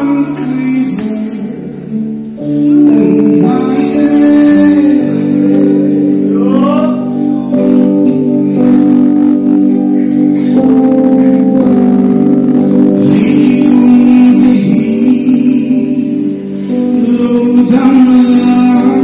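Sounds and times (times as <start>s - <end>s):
man singing gospel: 0.0s - 8.9s, 13.0s - 19.0s
held organ chords: 0.0s - 19.0s.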